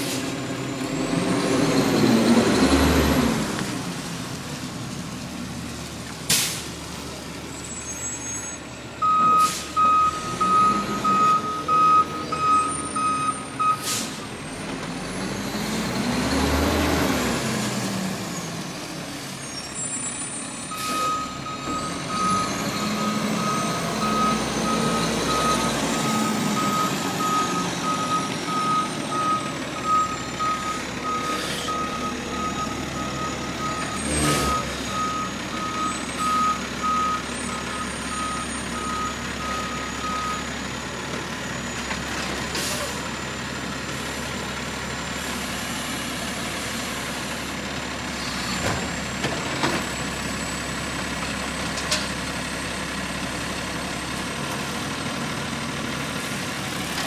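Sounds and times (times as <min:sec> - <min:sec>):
diesel engine revving: 0:00.0 - 0:57.0
truck backup alarm beeping: 0:07.6 - 0:14.3, 0:19.8 - 0:41.9.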